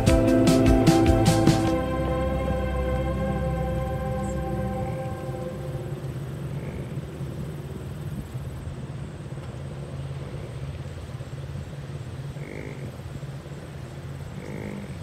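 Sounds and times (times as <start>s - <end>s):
short pitched sound: 0.0s - 6.6s
vehicle engine and road noise: 0.0s - 15.0s.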